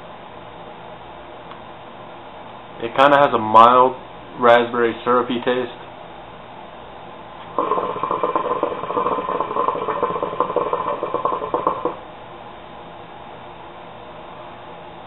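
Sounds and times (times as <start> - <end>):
hookah water bubbling: 7.4 - 12.1.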